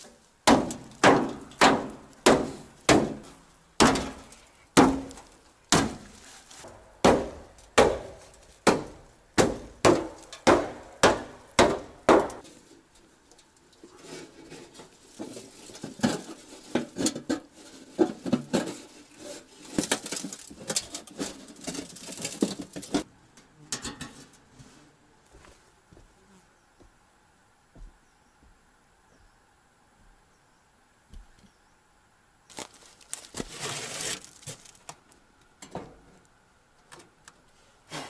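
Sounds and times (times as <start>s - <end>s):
sharp strikes on wood: 0.5s - 6.1s, 6.7s - 12.4s
plastic sheeting crinkling: 32.5s - 34.9s.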